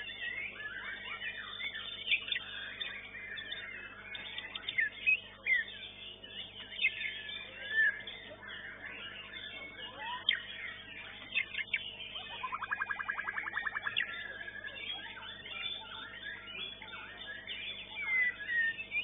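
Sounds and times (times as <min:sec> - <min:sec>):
bird singing: 0:00.0 - 0:19.0
faint steady hum: 0:00.0 - 0:19.0.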